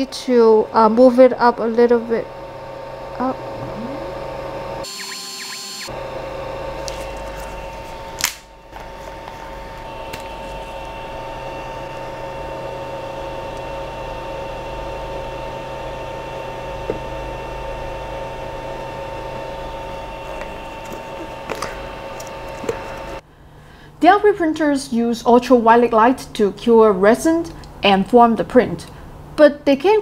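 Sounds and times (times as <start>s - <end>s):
steady whining tones: 0.0s - 8.2s
fan hum: 0.0s - 30.0s.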